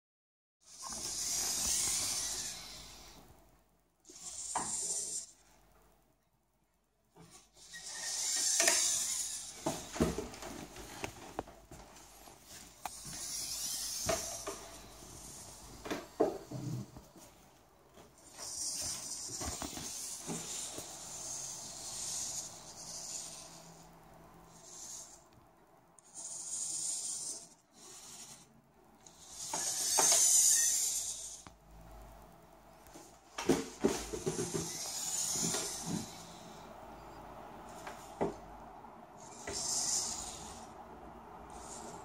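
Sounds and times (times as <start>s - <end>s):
servos whirring: 0.7s - 3.4s, 4.1s - 5.4s, 7.3s - 10.3s, 12.8s - 16.2s, 18.2s - 25.4s, 26.0s - 32.2s, 34.4s - 37.1s, 39.2s - 40.7s, 41.5s - 42.0s.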